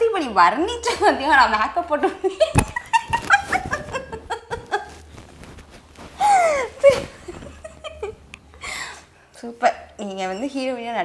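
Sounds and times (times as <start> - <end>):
man and woman laughing: 2.4 - 5.1, 6.2 - 8.3.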